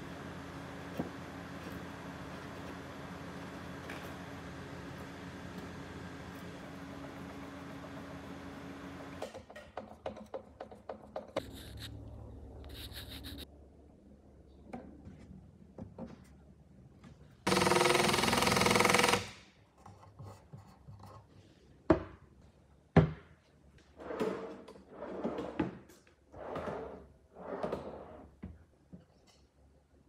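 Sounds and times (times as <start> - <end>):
power tool running: 17.5 - 19.3
drawer rolling on metal slides: 23.9 - 28.4.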